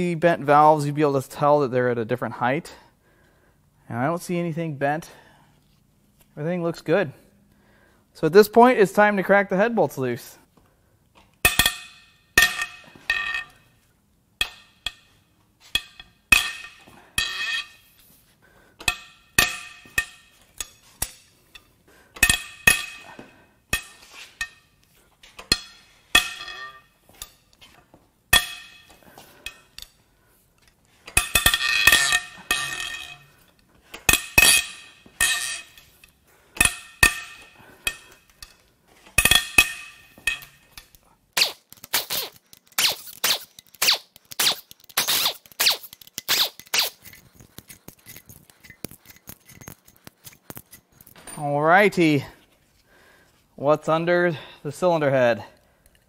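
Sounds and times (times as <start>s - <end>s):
metallic snaps of bolts cracking loose: 30.6s - 51.3s.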